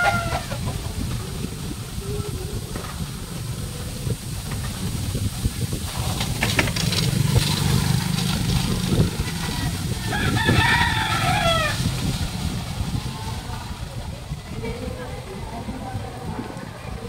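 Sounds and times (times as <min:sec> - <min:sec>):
rooster crowing: 0:00.0 - 0:01.0, 0:08.9 - 0:12.2
low engine rumble: 0:00.0 - 0:17.0.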